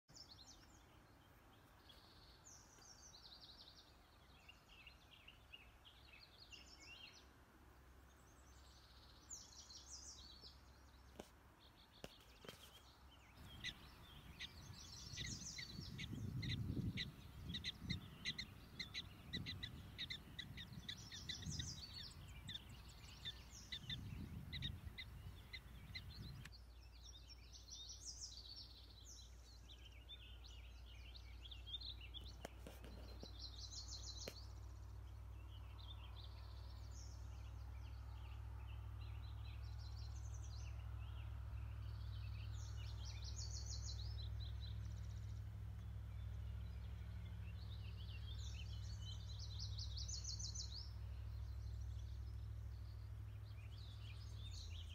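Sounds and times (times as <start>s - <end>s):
birdsong chirping: 0.1s - 54.9s
wind buffeting microphone: 13.4s - 26.5s.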